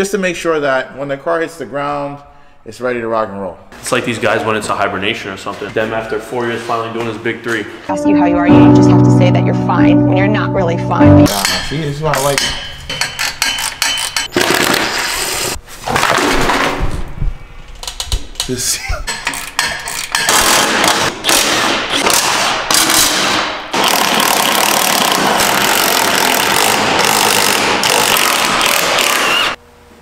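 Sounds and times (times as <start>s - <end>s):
cordless impact driver: 20.3s - 29.6s.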